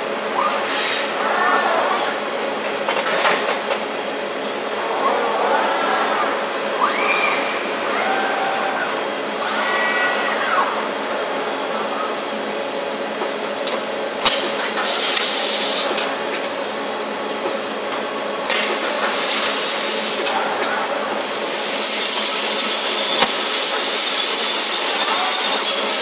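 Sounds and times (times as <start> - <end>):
factory machinery humming: 0.0 - 26.0
robotic welding hissing: 21.2 - 26.0.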